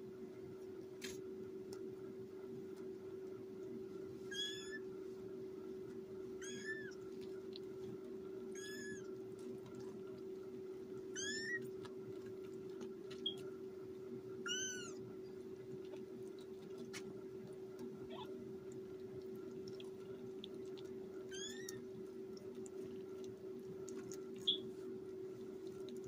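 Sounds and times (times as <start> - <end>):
kittens mewing: 6.4 - 7.0, 8.6 - 9.1, 11.1 - 11.7, 14.4 - 15.1, 18.0 - 18.4, 21.3 - 21.8.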